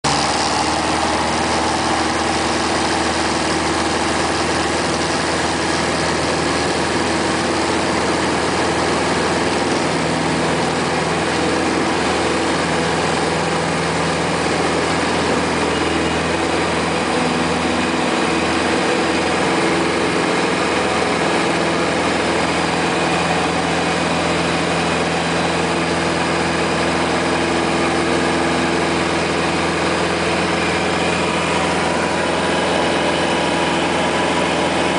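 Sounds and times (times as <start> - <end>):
aircraft engine and propeller drone: 0.1 - 34.9.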